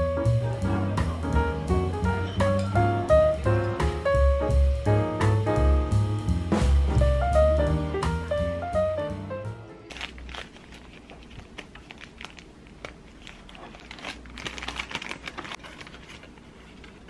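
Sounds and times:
paper bag crinkling: 9.8 - 17.0.

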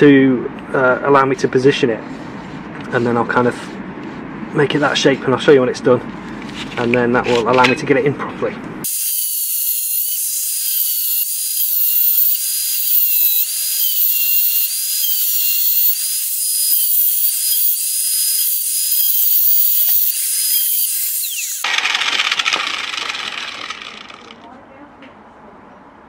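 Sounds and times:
angle grinder cutting metal: 8.9 - 24.5
dull rough noise: 21.6 - 24.6.

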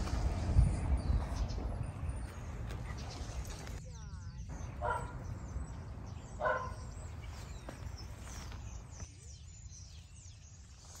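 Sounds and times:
birds chirping: 0.0 - 11.0
dog barking: 4.8 - 5.2, 6.4 - 6.9.

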